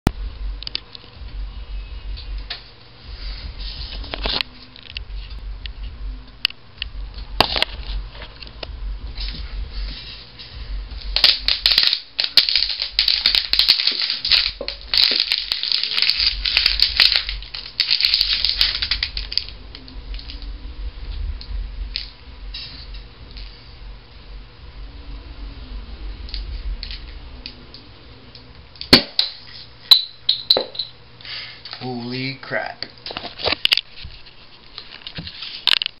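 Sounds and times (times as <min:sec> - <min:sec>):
plastic bottle crackling: 0:11.1 - 0:20.4.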